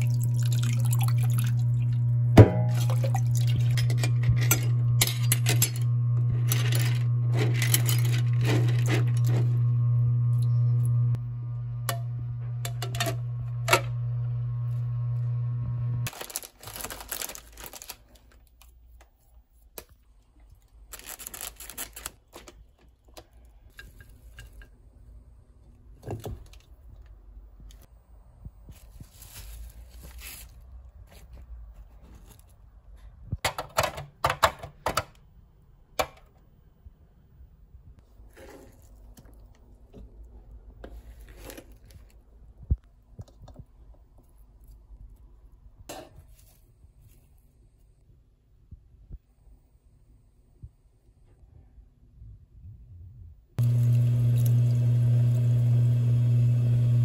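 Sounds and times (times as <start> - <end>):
low steady hum: 0.0 - 17.9
plastic packaging crinkling: 6.4 - 9.7, 16.1 - 18.8, 20.6 - 23.6, 28.7 - 31.4
onion brushing rustle: 28.7 - 32.5.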